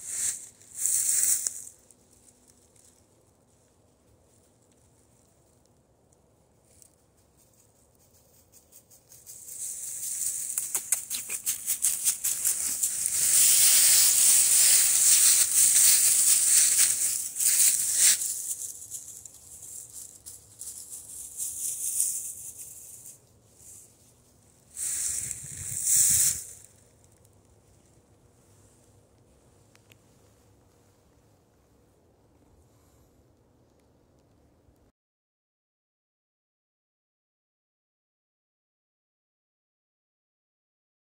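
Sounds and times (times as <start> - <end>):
footsteps in dry leaves: 0.0 - 2.8, 9.0 - 24.0, 24.7 - 26.8.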